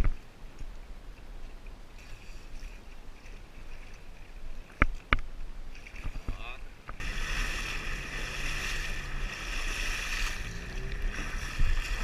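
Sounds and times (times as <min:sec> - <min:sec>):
sharp slaps of water: 0:04.8 - 0:12.0
sea water lapping: 0:05.7 - 0:12.0
low rumble: 0:07.0 - 0:12.0.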